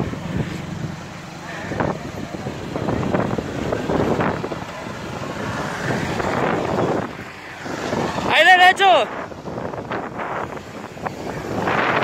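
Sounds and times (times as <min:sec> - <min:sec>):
truck ploughing through sand: 0:00.0 - 0:08.4
off-road engine running hard: 0:00.0 - 0:12.0
wind buffeting microphone: 0:00.0 - 0:12.0.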